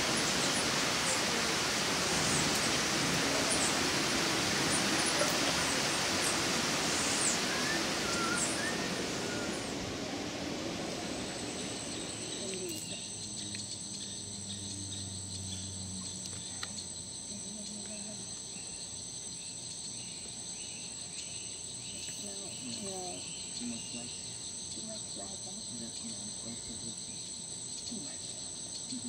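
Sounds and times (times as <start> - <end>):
faint bird notes: 0.0 - 16.8
even hiss: 0.0 - 19.2
high insect drone: 0.0 - 29.0.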